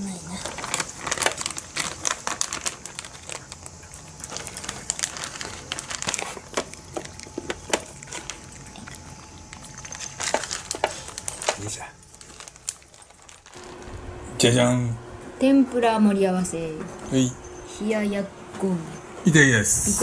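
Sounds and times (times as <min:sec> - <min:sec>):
cat crunching dry kibble: 0:00.4 - 0:14.0.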